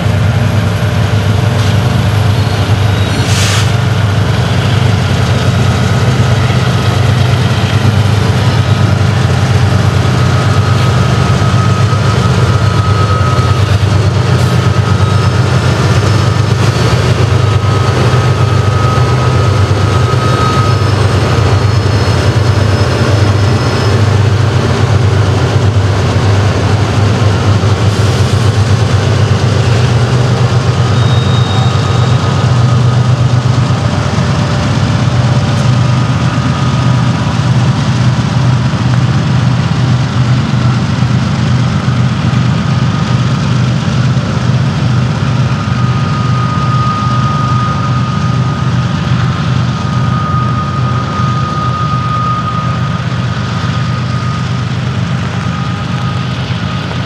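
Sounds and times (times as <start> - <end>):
locomotive engine drone: 0.0 - 57.0.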